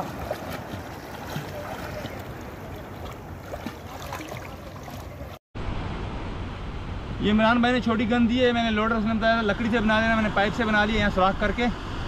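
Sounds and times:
water splashing from swimming: 0.0 - 5.4
noisy water wash: 0.0 - 8.0.

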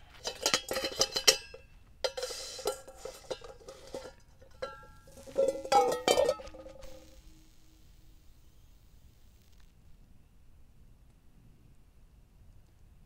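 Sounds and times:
cooling metal clinks and knocks: 0.0 - 7.0
tongs clanking on bowl: 0.2 - 7.0
steel bowl ringing: 0.2 - 7.2.

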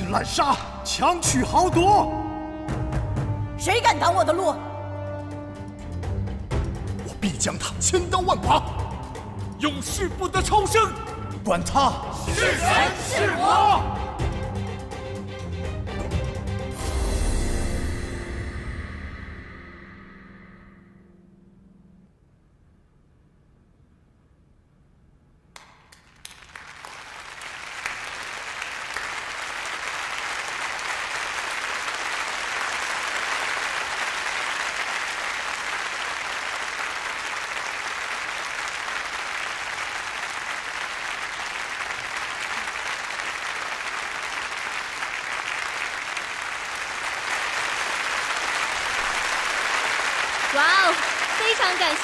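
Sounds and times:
audience applause: 12.3 - 13.9, 25.8 - 52.0.

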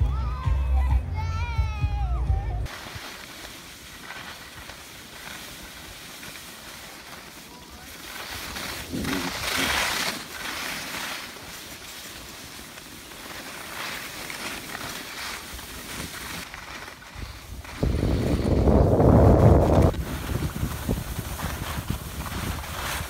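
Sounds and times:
skis scraping over snow: 2.7 - 23.0
wind buffeting microphone: 17.1 - 23.0.

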